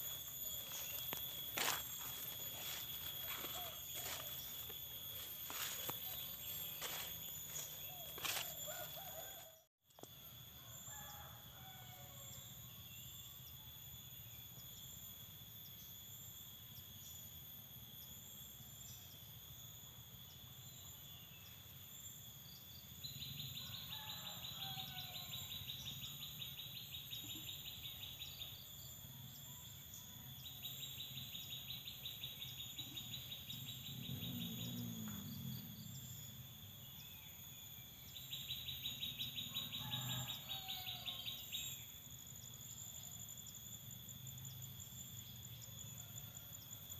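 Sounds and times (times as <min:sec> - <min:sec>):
insects shrilling: 0:00.0 - 0:09.5
rapid pulsing insect call: 0:00.0 - 0:46.9.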